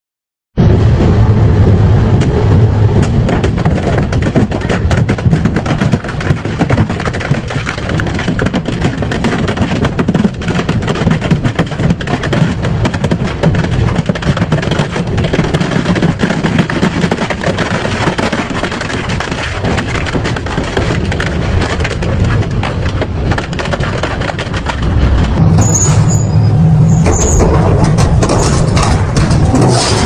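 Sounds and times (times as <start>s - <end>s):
shredder low rumble: 0.6s - 30.0s
plastic cracking and snapping: 3.0s - 25.4s.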